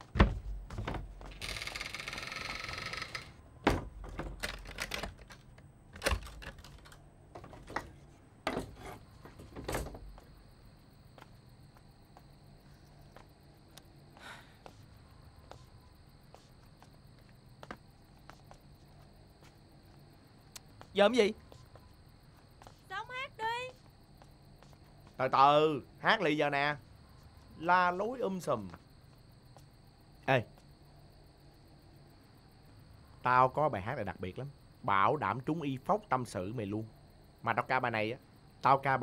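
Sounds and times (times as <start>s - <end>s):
door knocks and latch clicks: 0.0s - 1.3s, 3.6s - 5.3s
wooden door scraping: 0.0s - 5.4s, 6.0s - 10.1s
faint ticks: 12.7s - 14.8s, 18.9s - 22.7s.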